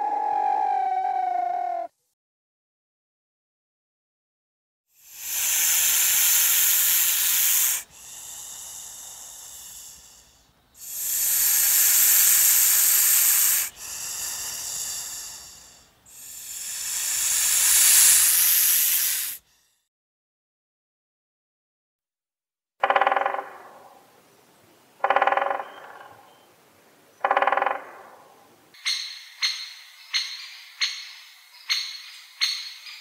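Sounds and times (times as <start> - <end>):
snake hissing: 5.0 - 19.8.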